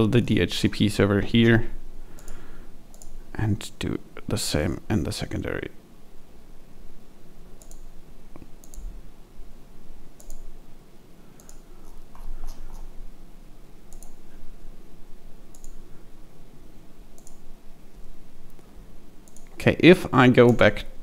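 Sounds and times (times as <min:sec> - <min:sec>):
low room hum: 0:00.0 - 0:21.0
computer mouse clicking: 0:02.1 - 0:03.2, 0:07.6 - 0:08.9, 0:10.2 - 0:10.5, 0:11.4 - 0:12.9, 0:13.9 - 0:14.2, 0:15.5 - 0:15.8, 0:17.2 - 0:17.4, 0:19.2 - 0:19.6.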